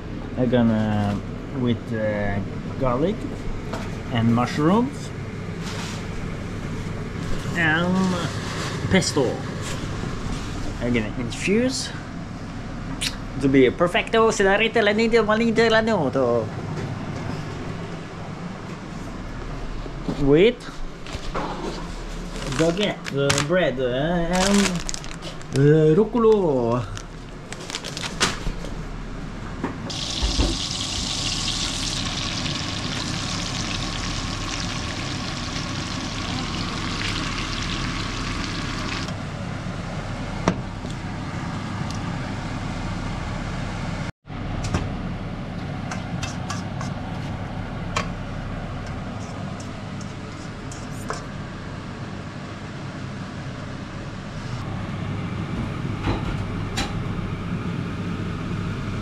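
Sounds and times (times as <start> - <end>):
steady low hum: 0.0 - 59.0
meat sizzling in a wok: 29.9 - 39.1.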